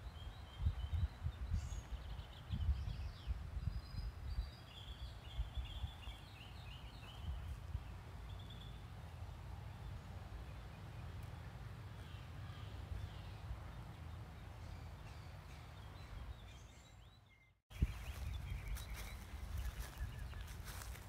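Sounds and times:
wind buffeting microphone: 0.0s - 8.0s, 17.7s - 21.0s
birds chirping: 0.0s - 21.0s.

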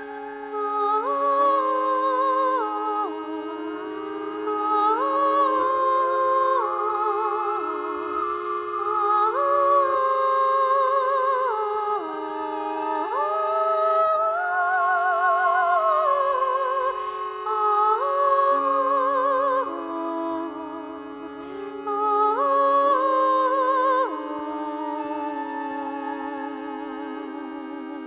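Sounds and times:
sustained low note: 0.0s - 14.2s
slow melody with vibrato: 0.0s - 28.0s.

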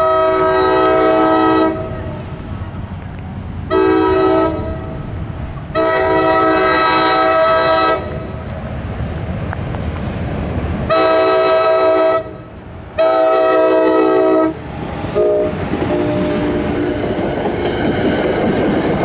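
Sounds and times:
train horn multi-note chord: 0.0s - 2.2s, 3.7s - 5.0s, 5.8s - 8.2s, 10.9s - 12.4s, 13.0s - 14.6s, 15.2s - 17.0s.

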